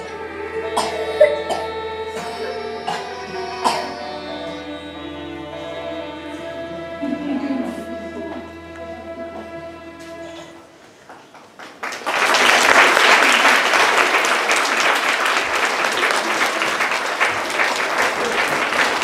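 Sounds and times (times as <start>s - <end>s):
held musical chord: 0.0s - 10.7s
audience applause: 11.0s - 19.0s.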